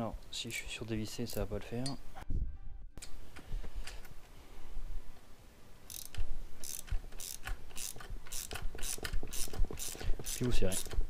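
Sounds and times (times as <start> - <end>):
ratchet wrench clicking: 5.9 - 11.0.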